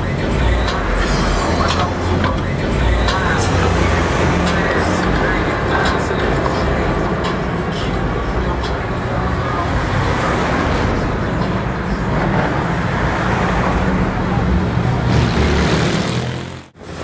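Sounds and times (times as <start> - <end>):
car engines running: 0.0 - 17.0
tyre and road noise: 0.0 - 17.0.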